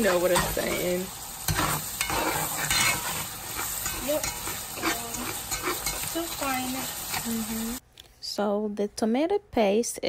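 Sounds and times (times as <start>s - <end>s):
paste sizzling in oil: 0.0s - 7.8s
spatula scraping metal pot: 0.0s - 7.8s.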